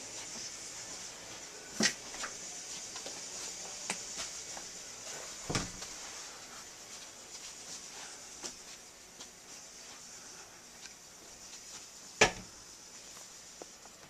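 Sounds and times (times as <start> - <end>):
steady hiss: 0.0 - 14.0
dull thump: 5.5 - 5.8.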